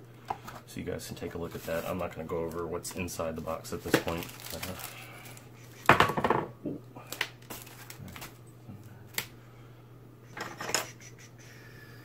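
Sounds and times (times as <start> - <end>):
steady low hum: 0.0 - 12.0
packaging rustling: 1.4 - 5.9, 7.1 - 8.4.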